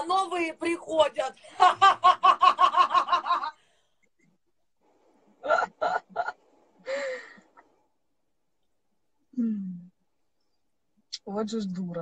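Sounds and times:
breathy exhale: 0:06.8 - 0:07.5.

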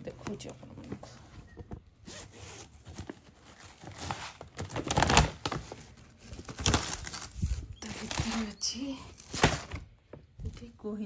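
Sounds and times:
plastic packet crinkling: 0:03.0 - 0:09.7.

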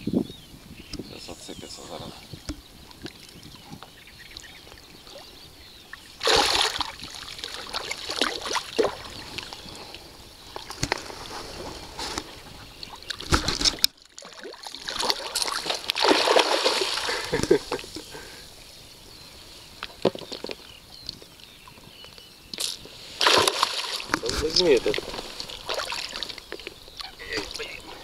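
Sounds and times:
fish splashing in water: 0:05.9 - 0:09.6, 0:12.9 - 0:18.2, 0:22.7 - 0:27.7.

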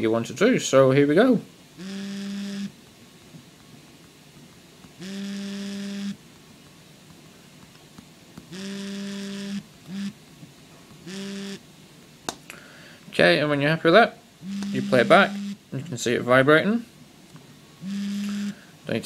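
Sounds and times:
phone vibration motor buzzing: 0:01.8 - 0:02.8, 0:05.0 - 0:06.2, 0:08.5 - 0:10.2, 0:11.0 - 0:11.6, 0:14.4 - 0:15.6, 0:17.8 - 0:18.6.

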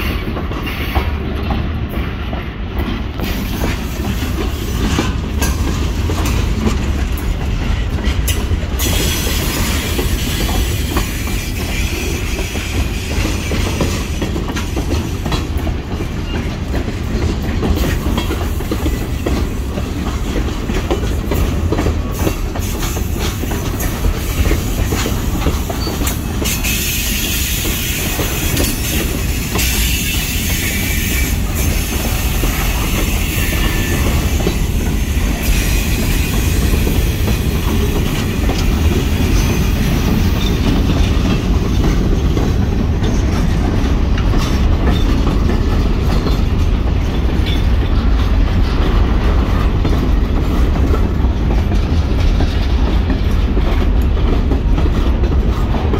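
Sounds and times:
freight train cars rumbling: 0:00.0 - 0:55.9
wheels clicking over rail joints: 0:00.0 - 0:55.9.

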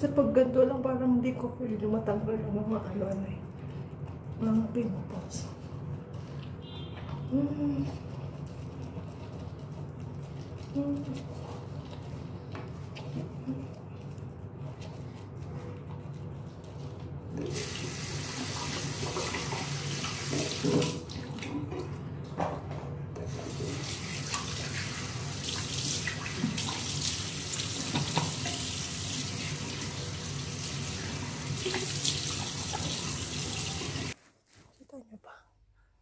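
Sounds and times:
tap water running into sink: 0:17.4 - 0:21.9, 0:23.2 - 0:34.2.

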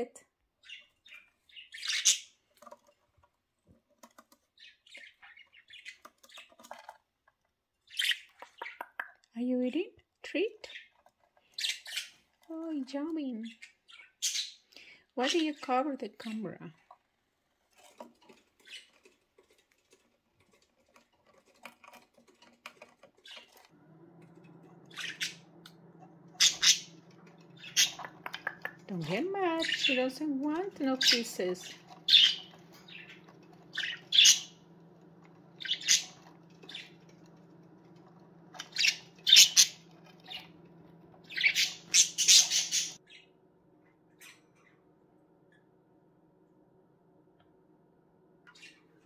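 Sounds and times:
birds pecking at seed: 0:00.6 - 0:09.3, 0:10.2 - 0:15.5, 0:16.2 - 0:43.0
ticking and rustling in seed: 0:16.9 - 0:24.8
steady low hum: 0:23.2 - 0:49.0.

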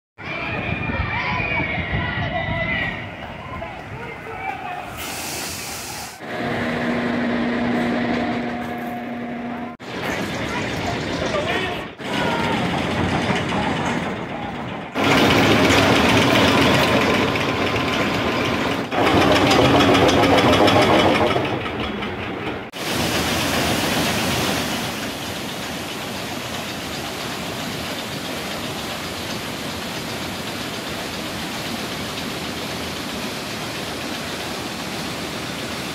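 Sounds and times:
ride lift chain clattering: 0:12.6 - 0:22.7.

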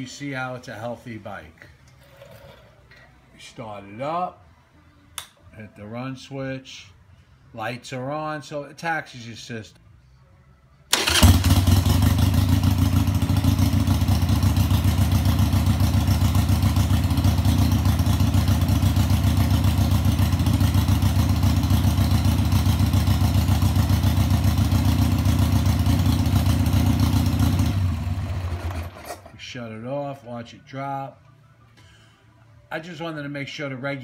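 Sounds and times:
motorcycle engine starting and idling: 0:10.9 - 0:29.6.

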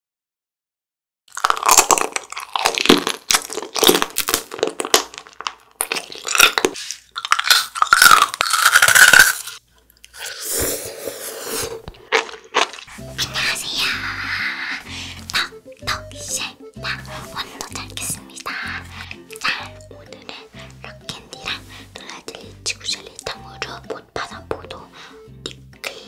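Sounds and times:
crunching hard candy: 0:01.3 - 0:13.5, 0:17.6 - 0:19.8
soft chewing: 0:01.4 - 0:15.9, 0:16.8 - 0:26.0.

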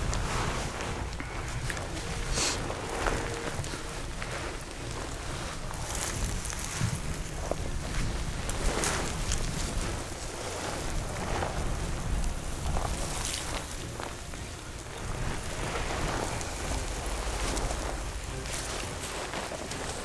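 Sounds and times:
crawling over stony ground: 0:00.0 - 0:20.0
wind rumbling on microphone: 0:00.0 - 0:20.0.

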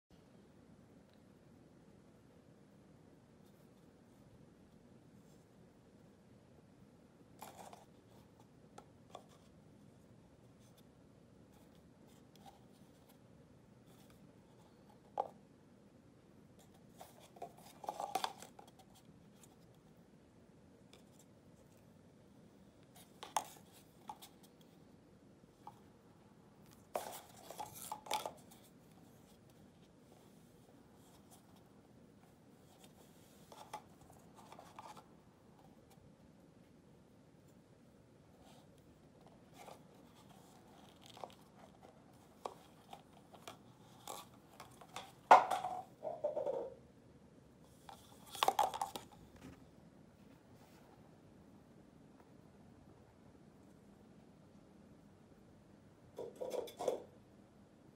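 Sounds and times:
paper cups tapping and rustling: 0:16.6 - 0:19.8, 0:22.8 - 0:24.8, 0:26.6 - 0:30.4, 0:38.4 - 0:46.8, 0:47.8 - 0:49.6, 0:56.2 - 0:57.1.

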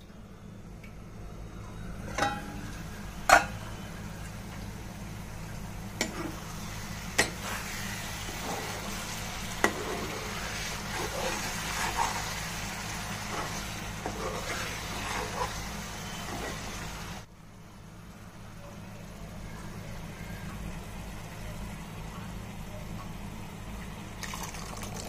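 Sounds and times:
curry sizzling in a pan: 0:05.5 - 0:17.3
spoon stirring and scraping: 0:06.0 - 0:06.4, 0:07.2 - 0:16.7.

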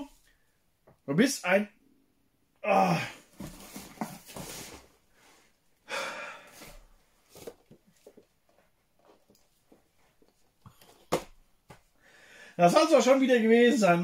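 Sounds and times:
man breathing out hard: 0:05.8 - 0:06.8, 0:12.0 - 0:12.6.

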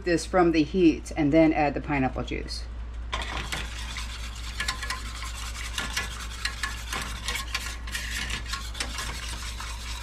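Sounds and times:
whisk scraping saucepan: 0:03.1 - 0:10.0.

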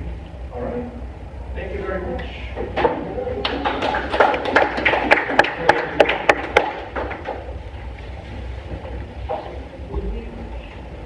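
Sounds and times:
low room rumble: 0:00.0 - 0:11.0
sparse applause: 0:03.4 - 0:07.4.

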